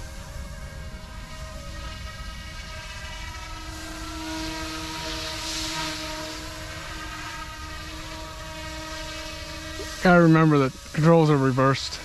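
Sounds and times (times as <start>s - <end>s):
model helicopter motor whine: 0.0s - 12.0s.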